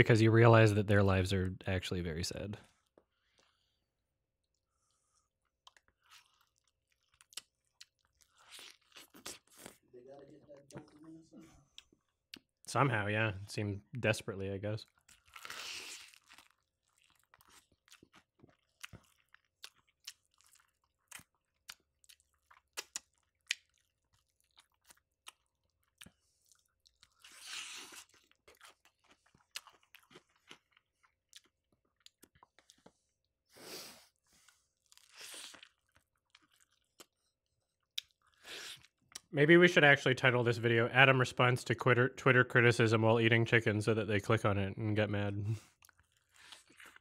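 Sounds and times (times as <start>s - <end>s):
chewing: 4.5s - 9.8s, 14.8s - 33.1s, 34.3s - 39.3s, 45.6s - 47.0s
crispy fried chicken crunching: 5.6s - 9.8s, 14.9s - 32.9s.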